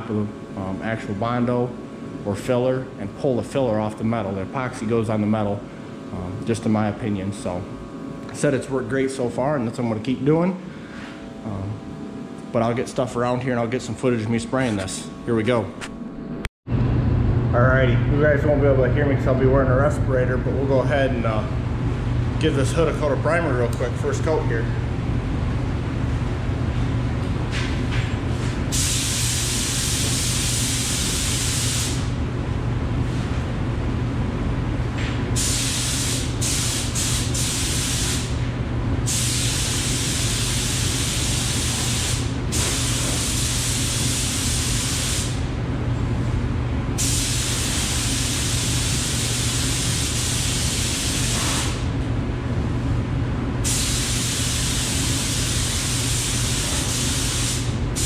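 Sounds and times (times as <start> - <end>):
steady low hum: 0.0 - 58.0
spray gun hissing: 28.7 - 32.1, 35.4 - 38.3, 39.1 - 45.4, 47.0 - 51.8, 53.7 - 58.0.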